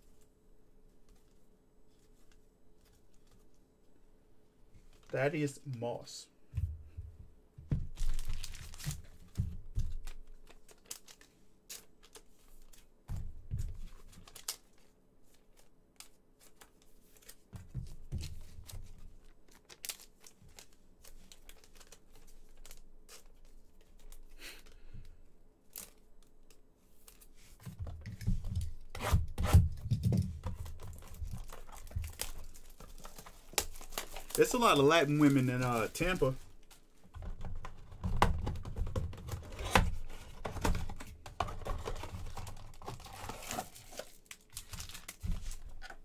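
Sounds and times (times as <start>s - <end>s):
card pack wrappers tearing and crinkling: 8.0s - 9.1s, 10.0s - 12.8s, 14.0s - 17.4s, 19.2s - 23.4s, 30.6s - 36.8s, 41.4s - 46.0s
cards shuffling: 10.0s - 12.9s, 25.7s - 46.0s.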